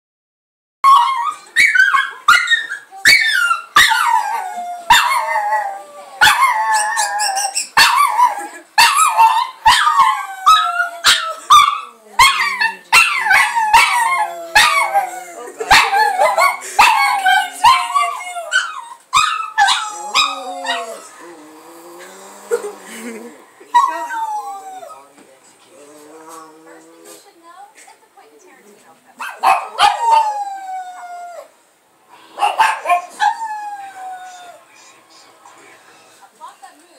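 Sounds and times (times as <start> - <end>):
dog howling: 0.8 - 15.2, 15.8 - 22.4, 29.6 - 31.6, 32.4 - 34.6.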